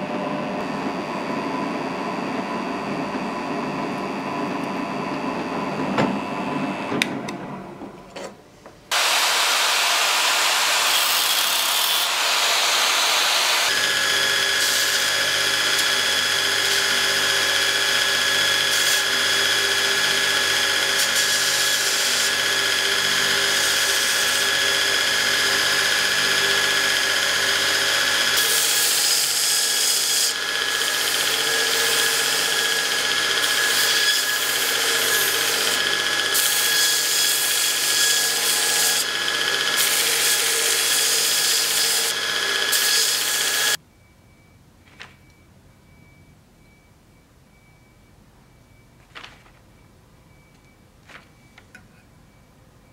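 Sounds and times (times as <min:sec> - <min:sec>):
belt grinder grinding metal: 0:08.9 - 0:43.8
drill press drilling metal: 0:08.9 - 0:43.8.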